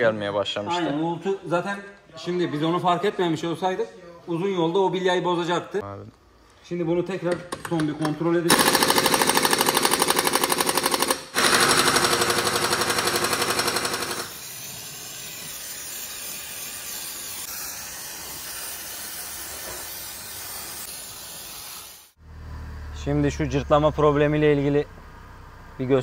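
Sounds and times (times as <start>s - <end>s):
pneumatic impact wrench hammering: 7.5s - 22.1s
aerosol spray can hissing: 14.1s - 22.2s.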